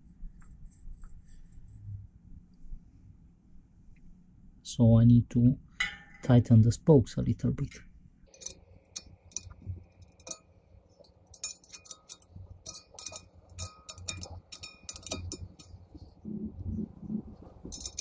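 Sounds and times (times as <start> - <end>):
spoke ringing ping: 11.3 - 15.8.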